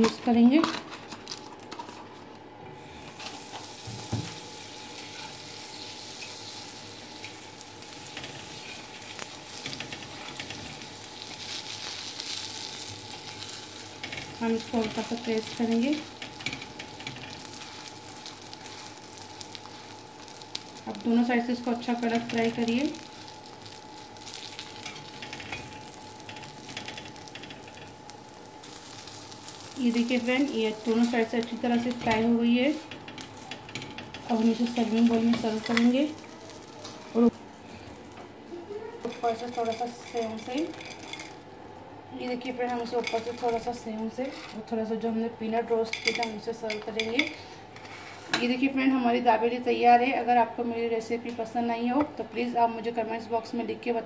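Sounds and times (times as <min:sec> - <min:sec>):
butter sizzling on griddle: 0:02.8 - 0:44.6
small crackles: 0:05.0 - 0:41.5.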